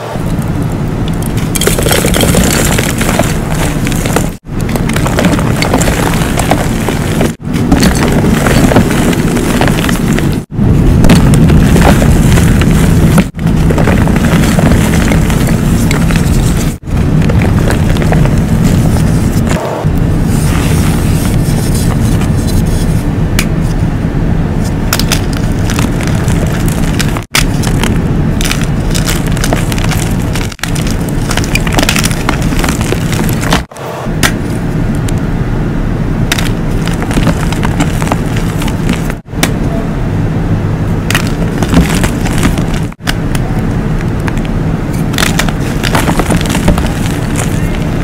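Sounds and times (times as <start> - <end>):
chalk crunching and crumbling by hand: 1.4 - 19.5, 36.3 - 39.2, 41.1 - 43.0, 45.0 - 48.0.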